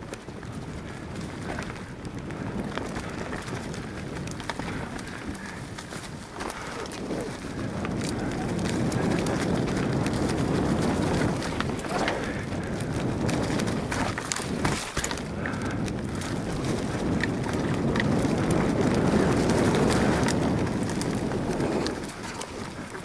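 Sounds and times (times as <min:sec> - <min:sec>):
bike clicks and rattles: 0:00.0 - 0:23.0
bike tyres crunching on leaves: 0:00.0 - 0:23.0.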